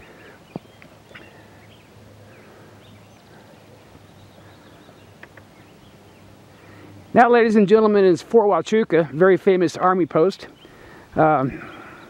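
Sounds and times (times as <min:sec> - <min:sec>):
bird chirps and calls: 0:00.0 - 0:06.9, 0:10.3 - 0:12.0.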